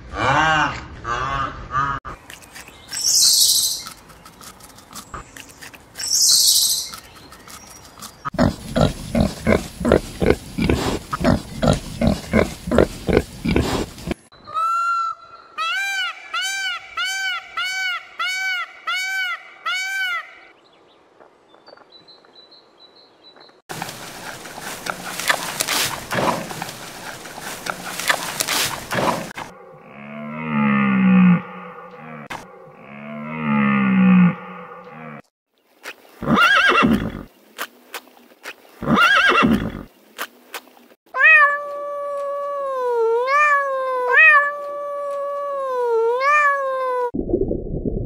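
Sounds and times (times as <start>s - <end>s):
pig grunting: 8.3s - 14.2s.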